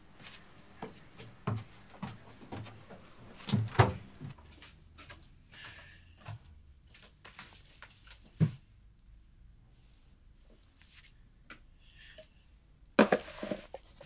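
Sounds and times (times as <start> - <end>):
footsteps on wooden stairs: 0.0 - 5.3.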